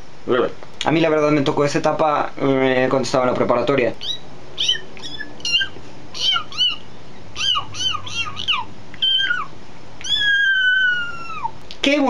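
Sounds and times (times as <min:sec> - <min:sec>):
bird-like chirping: 0:04.0 - 0:11.5.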